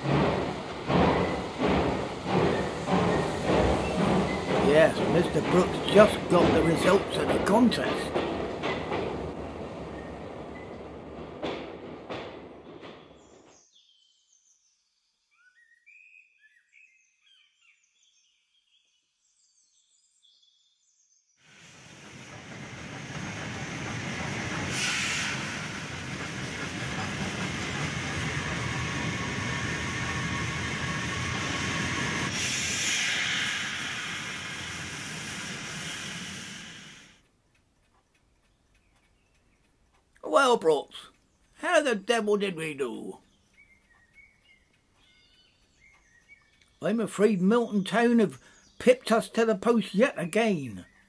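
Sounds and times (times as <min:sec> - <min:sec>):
steam train running past: 0:00.0 - 0:13.6, 0:21.5 - 0:37.3, 0:40.2 - 0:44.4, 0:45.8 - 0:51.0
faint birdsong: 0:01.2 - 0:24.6, 0:35.8 - 0:51.0.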